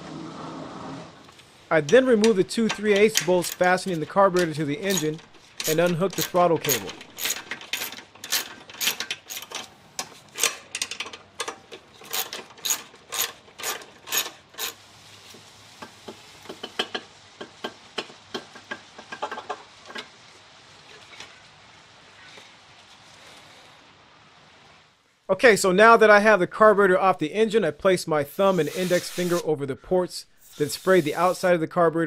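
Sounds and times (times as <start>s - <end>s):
socket ratchet clicking: 4.4s - 9.7s.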